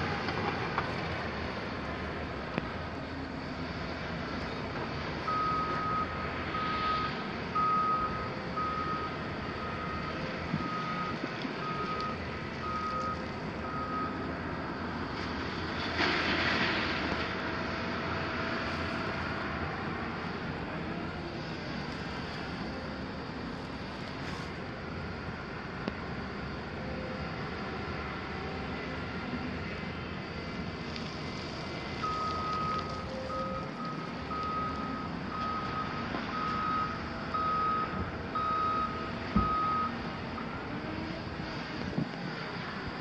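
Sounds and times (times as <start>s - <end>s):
diesel engines running: 0.0s - 43.0s
reversing alarm beeping: 5.2s - 14.3s, 31.9s - 40.0s.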